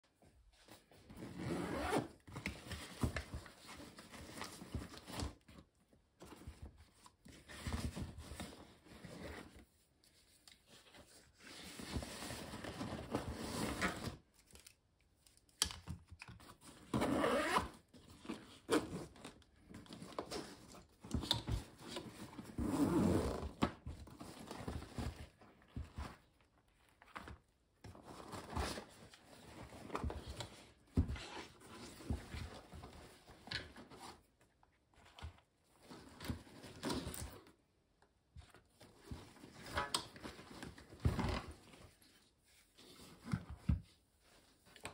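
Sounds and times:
zipper being pulled open: 0:01.2 - 0:02.2, 0:17.0 - 0:17.7, 0:22.6 - 0:23.5
nylon fabric rustling: 0:01.4 - 0:02.0.

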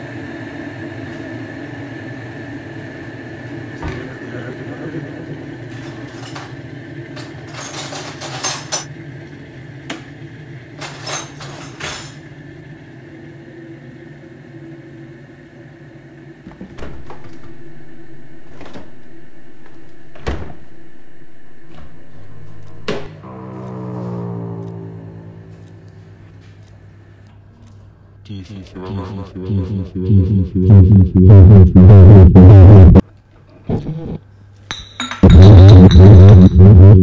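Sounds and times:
steady hum: 0:00.0 - 0:37.0
cupboard doors clicking and knocking: 0:18.4 - 0:20.8.

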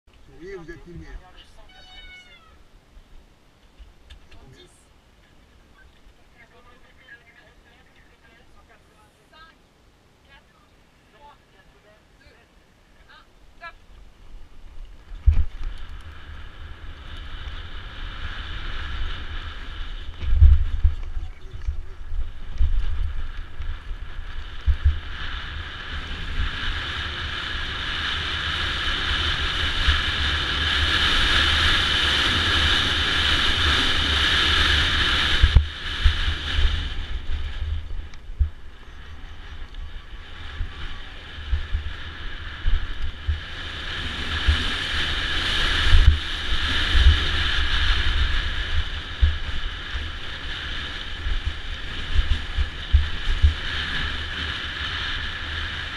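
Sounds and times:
tyre and wind rush: 0:13.0 - 0:55.9.

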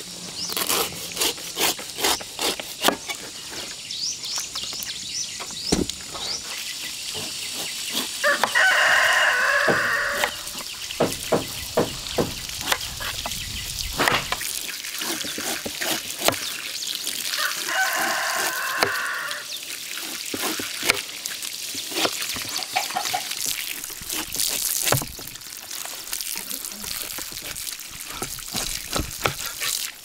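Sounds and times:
rooster crowing: 0:08.2 - 0:10.6, 0:17.3 - 0:19.5.

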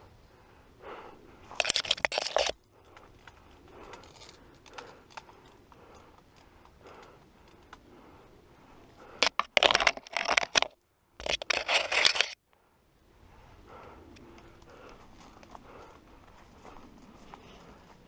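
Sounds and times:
branches scraping camera: 0:01.5 - 0:07.0, 0:09.0 - 0:12.4.

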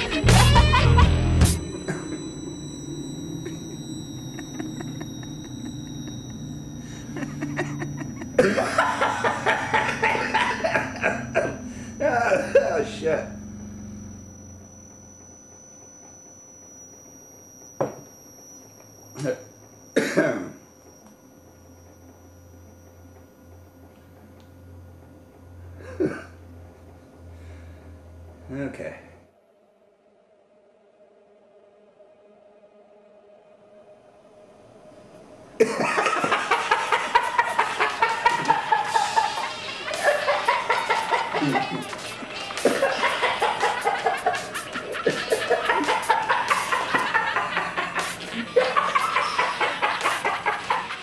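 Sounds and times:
low steady hum: 0:00.0 - 0:29.8
man coughing: 0:20.0 - 0:20.6, 0:25.8 - 0:26.3.

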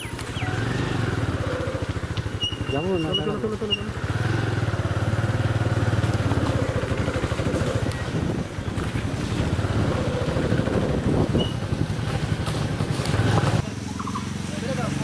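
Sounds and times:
motorcycle engine running: 0:00.0 - 0:15.0.

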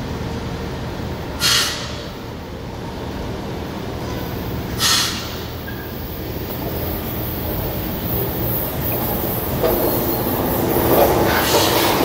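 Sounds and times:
short hiss: 0:01.4 - 0:02.0, 0:04.8 - 0:05.4
train motors rumbling: 0:02.0 - 0:12.0.

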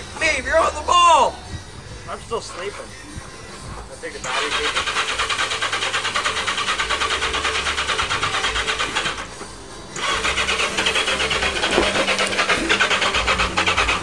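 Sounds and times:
engine cranking on electric starter: 0:04.2 - 0:14.0.

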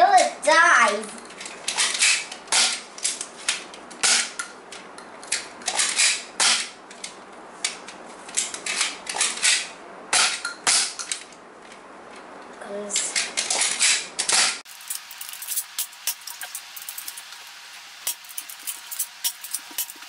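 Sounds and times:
toy dart blasters popping: 0:02.0 - 0:02.8.

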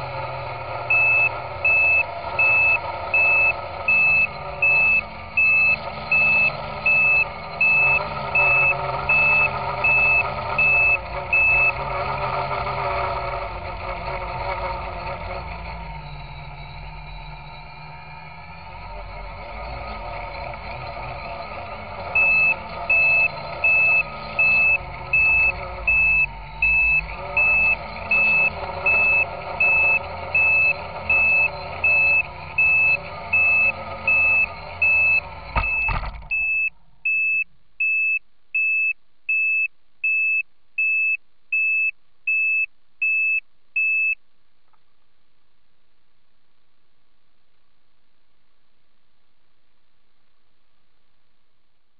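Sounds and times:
quadcopter motors whining: 0:00.0 - 0:36.7
onboard buzzer beeping: 0:00.0 - 0:44.2
drone touching down with a knock: 0:35.5 - 0:36.5.

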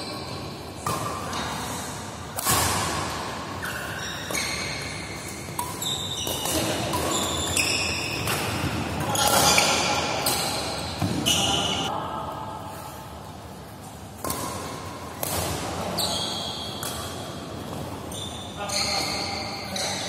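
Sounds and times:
racket hitting shuttlecock: 0:02.3 - 0:11.9, 0:14.2 - 0:16.0
shoes squeaking on court: 0:03.6 - 0:11.9, 0:15.2 - 0:20.0.

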